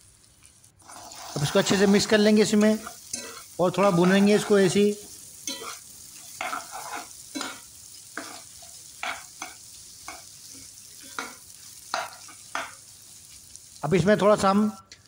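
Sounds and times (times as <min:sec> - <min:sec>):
light sizzle of frying: 0:00.0 - 0:15.0
spatula scraping a pan: 0:00.8 - 0:04.6, 0:05.4 - 0:12.8.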